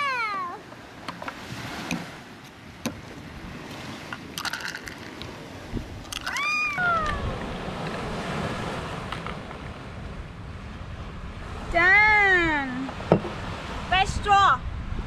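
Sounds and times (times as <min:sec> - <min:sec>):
person exclaiming: 0:00.0 - 0:00.6, 0:06.2 - 0:07.3
ice clinking in cocktail shaker: 0:04.4 - 0:05.2.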